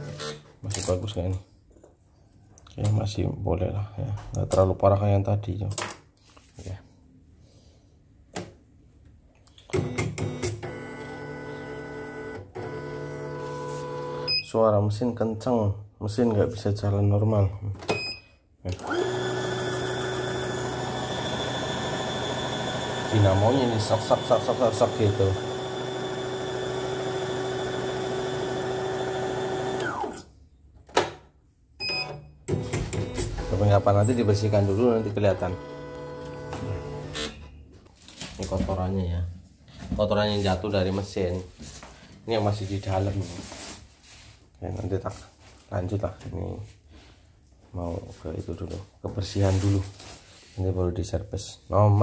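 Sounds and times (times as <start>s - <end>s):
electric motor whining: 18.8s - 30.2s.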